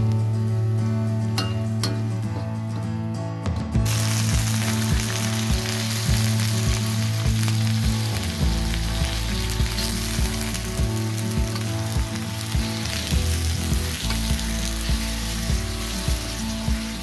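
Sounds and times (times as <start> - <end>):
chicken sizzling in hot oil: 3.8 - 17.0.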